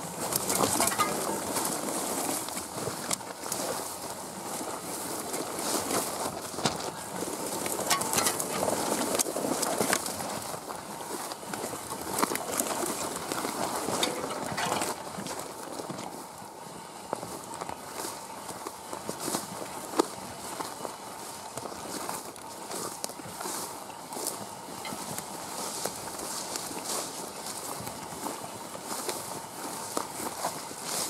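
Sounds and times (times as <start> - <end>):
footsteps: 0.0 - 16.3, 17.0 - 31.0
grass swishing against cart: 0.0 - 31.0
cart clicks and knocks: 0.3 - 1.8, 7.6 - 10.2, 12.0 - 16.0.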